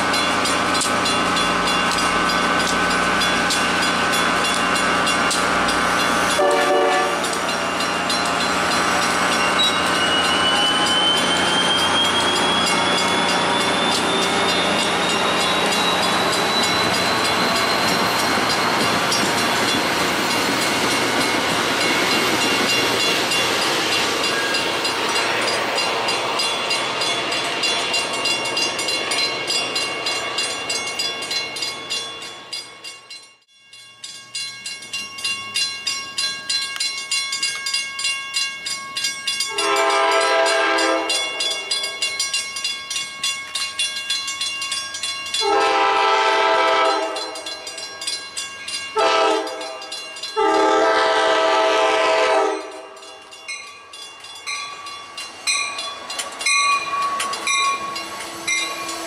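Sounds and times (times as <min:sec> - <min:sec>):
railroad crossing bell clanging: 0:00.0 - 0:59.0
train wheels on rails: 0:00.0 - 0:59.0
locomotive horn: 0:06.4 - 0:07.3, 0:39.5 - 0:41.3, 0:45.4 - 0:47.4, 0:49.0 - 0:49.7, 0:50.4 - 0:52.8.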